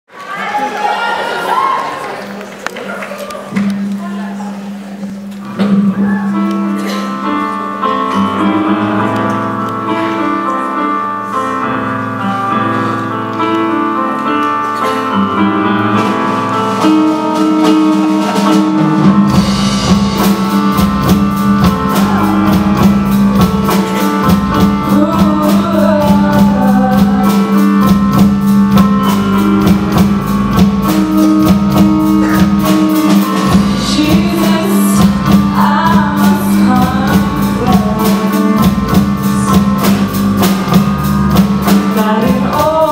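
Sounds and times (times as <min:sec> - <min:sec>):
live band playing slow song: 0:00.4 - 0:42.9
keyboard and bass notes: 0:03.4 - 0:42.9
drum kit with cymbals: 0:16.0 - 0:42.9
woman singing: 0:24.2 - 0:28.0, 0:33.5 - 0:40.1, 0:41.7 - 0:42.9.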